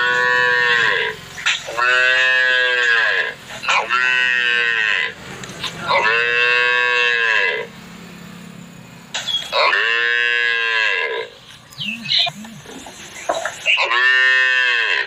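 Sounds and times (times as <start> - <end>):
calf mooing: 0.0 - 5.2, 5.9 - 7.7, 9.6 - 11.3, 13.7 - 15.0.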